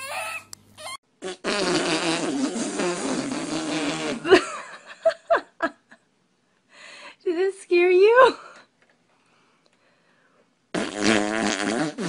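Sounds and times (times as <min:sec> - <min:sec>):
baby whimpering: 0:00.0 - 0:01.0
wobbling fart sound: 0:01.2 - 0:04.4, 0:10.7 - 0:12.0.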